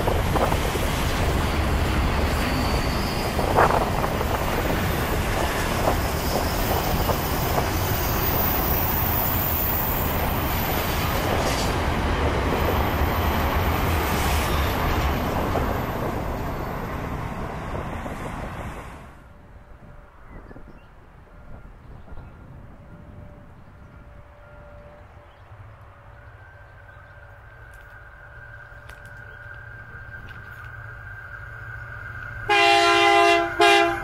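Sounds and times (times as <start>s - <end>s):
freight train wheels rumbling on track: 0.0s - 34.0s.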